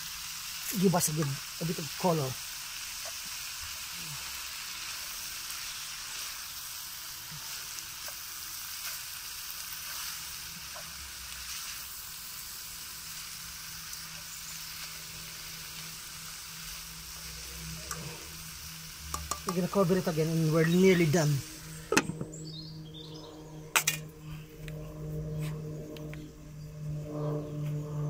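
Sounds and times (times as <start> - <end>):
noodles sizzling in a frying pan: 0.0 - 22.0.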